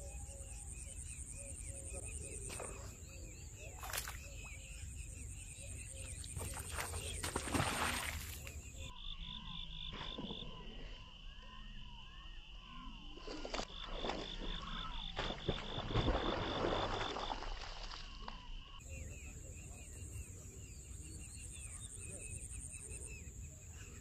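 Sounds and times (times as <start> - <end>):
splashes on water: 3.8 - 4.6, 6.2 - 8.6, 13.2 - 18.4.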